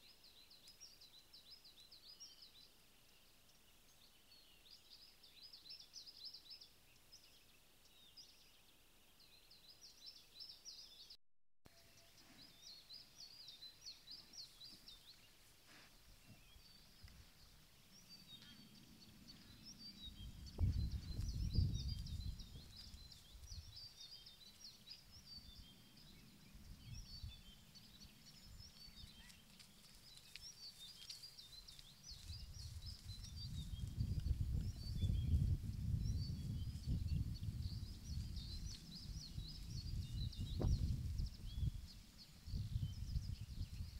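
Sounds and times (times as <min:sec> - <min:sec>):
songbirds chirping and singing: 0:11.7 - 0:43.9.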